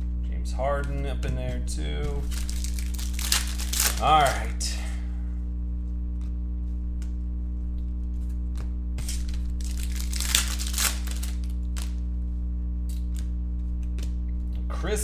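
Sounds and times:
low hum: 0.0 - 15.0
cards clicking: 2.1 - 4.5, 8.6 - 12.0
foil pack tearing and crinkling: 2.2 - 4.5, 9.0 - 12.0.

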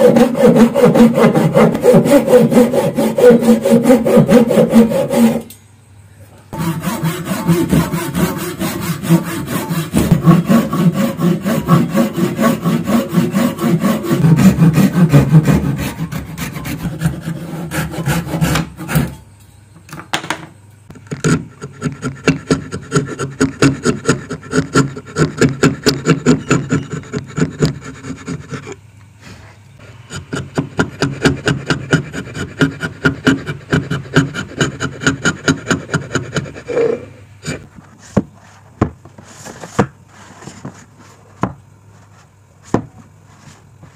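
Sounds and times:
chisel scraping wood: 0.0 - 5.5, 6.6 - 19.2, 20.9 - 28.8, 30.1 - 38.6
hand saw cutting wood: 0.0 - 5.5, 6.6 - 19.2, 21.1 - 28.8, 30.1 - 37.7.

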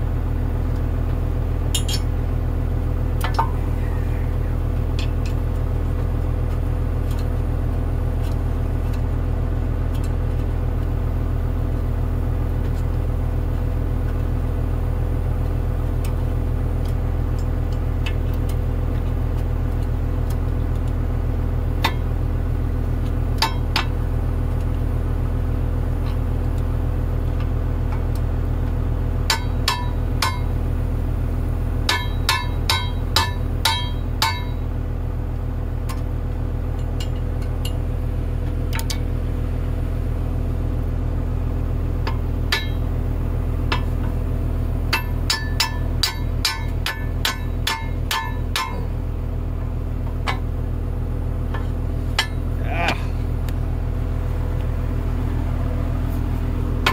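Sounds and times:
engine idling: 0.0 - 56.9
sledgehammer striking steel: 29.3 - 30.5, 31.9 - 34.6, 42.5 - 42.9, 44.9 - 49.0, 52.1 - 53.1.

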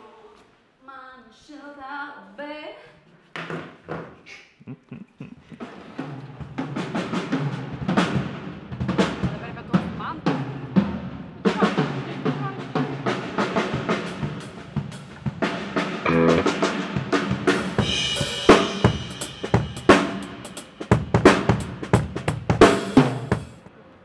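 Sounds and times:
drum kit playing: 5.6 - 23.6
low held note: 16.1 - 16.8
cymbals ringing: 16.1 - 16.9.

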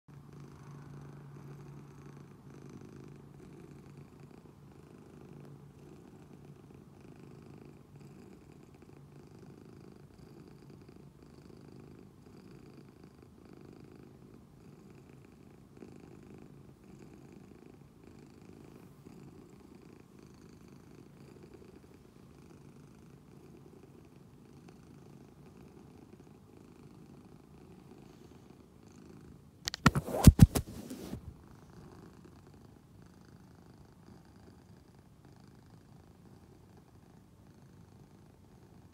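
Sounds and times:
cat purring: 0.1 - 38.9.

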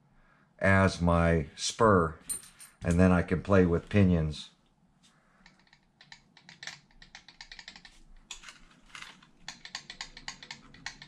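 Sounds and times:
fingers clicking plastic parts: 5.4 - 11.0.

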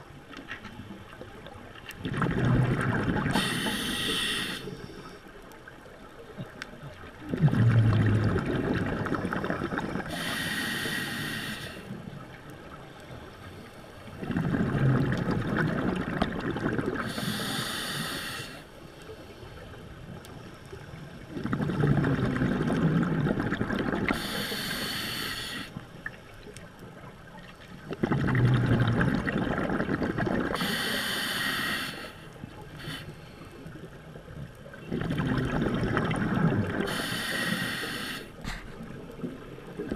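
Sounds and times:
exhaled bubbles rumbling: 1.0 - 3.6, 6.3 - 10.2, 14.1 - 17.3, 21.1 - 24.3, 27.0 - 30.7, 33.9 - 37.0
hissing regulator inhale: 3.3 - 5.3, 9.3 - 12.0, 17.0 - 19.6, 24.1 - 25.8, 30.5 - 33.8, 36.8 - 38.8.

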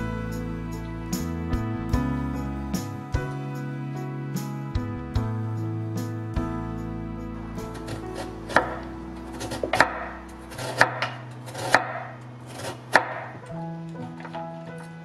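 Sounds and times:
knife chopping on wooden board: 7.9 - 13.4.

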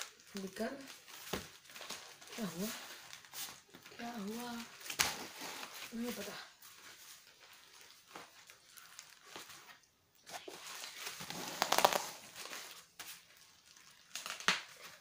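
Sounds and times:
paper wrapping crinkling and tearing: 0.0 - 15.0
sharp snaps: 11.2 - 12.2.

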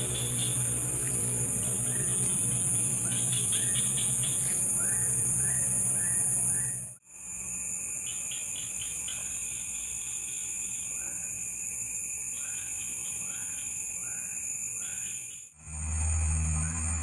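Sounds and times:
crickets chirping in trills: 0.0 - 15.8
high-pitched insect drone: 0.0 - 17.0
low rise-and-fall insect call: 0.0 - 17.0.

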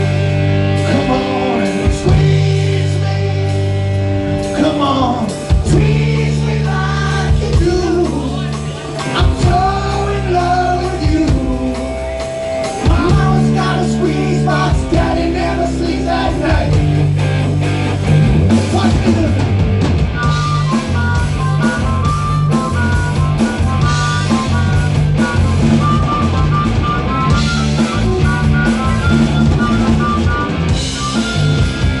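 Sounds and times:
live rock band playing: 0.0 - 32.0
man singing: 0.8 - 16.9.

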